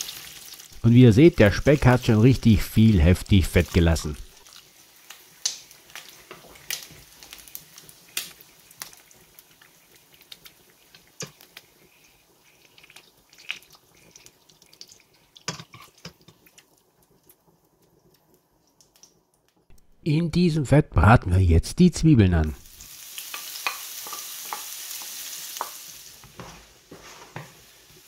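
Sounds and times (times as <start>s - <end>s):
bacon fat crackling and popping: 0.0s - 19.8s, 22.6s - 26.4s.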